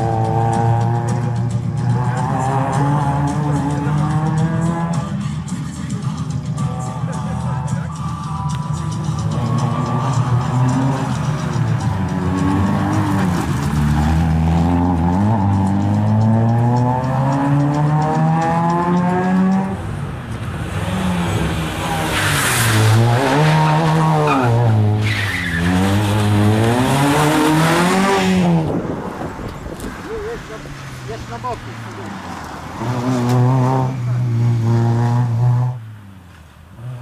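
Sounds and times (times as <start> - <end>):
rally car engine revving: 0.0 - 37.0
tyre squeal: 22.1 - 26.4.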